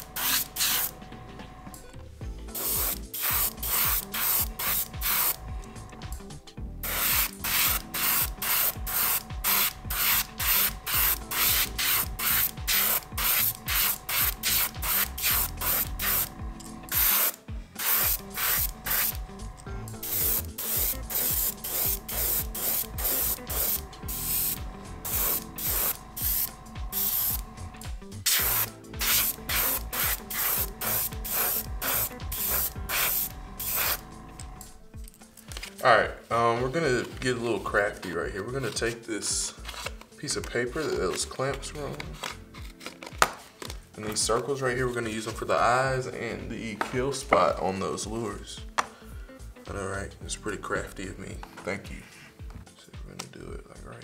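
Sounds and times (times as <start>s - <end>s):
airbrush spraying in bursts: 0.0s - 1.0s, 2.5s - 5.5s, 6.8s - 34.5s.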